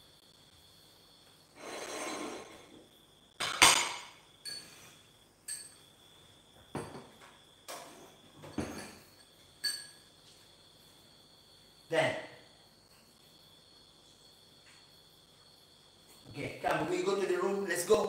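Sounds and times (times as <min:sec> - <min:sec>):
glasses and plates on countertop: 0:01.2 - 0:10.5
sharp glassy clinks and knocks: 0:03.4 - 0:04.8, 0:05.4 - 0:05.8, 0:08.4 - 0:10.1.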